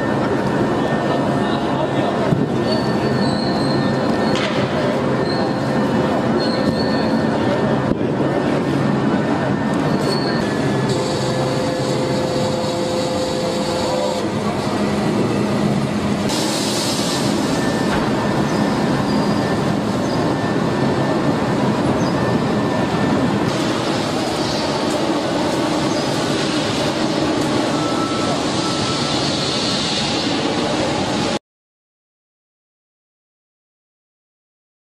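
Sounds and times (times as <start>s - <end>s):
heavy machinery rumbling: 0.0s - 31.4s
faint squealing: 9.6s - 14.3s
hissing burst: 16.2s - 19.2s.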